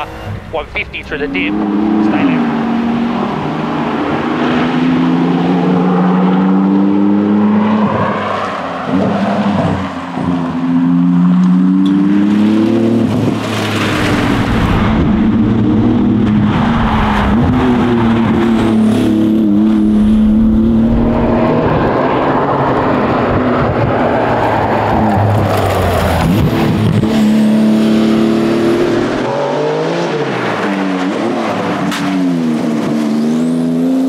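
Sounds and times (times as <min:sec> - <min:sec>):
car engine revving through gears: 0:00.0 - 0:34.0.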